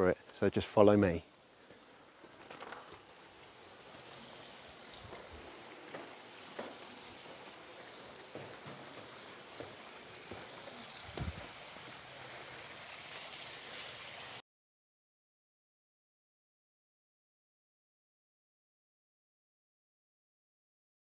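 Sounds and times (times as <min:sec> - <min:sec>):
faint outdoor ambience hiss: 0:00.0 - 0:14.4
footsteps on stone paving: 0:04.9 - 0:07.5, 0:08.2 - 0:11.5.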